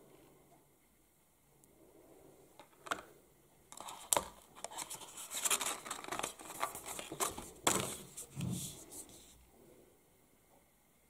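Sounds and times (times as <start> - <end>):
paper and cardboard rustling: 3.8 - 9.4.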